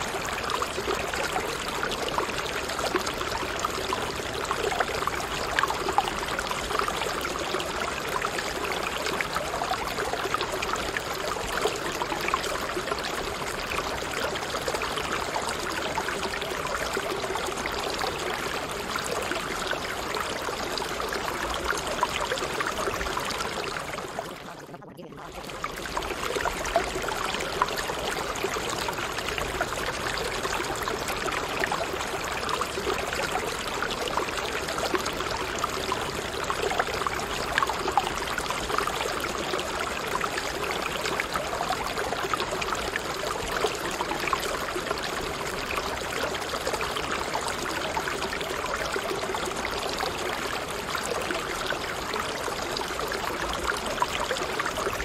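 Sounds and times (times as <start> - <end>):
stream flowing: 0.0 - 55.0.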